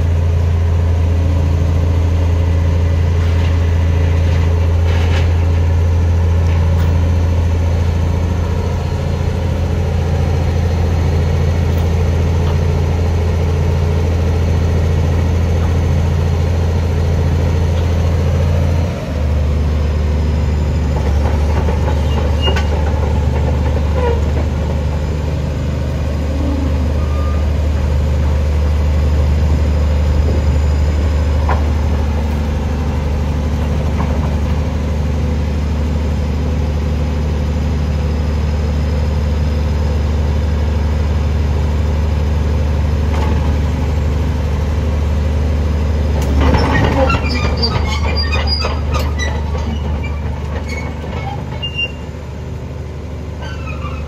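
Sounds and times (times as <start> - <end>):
bulldozer diesel engine running: 0.0 - 54.0.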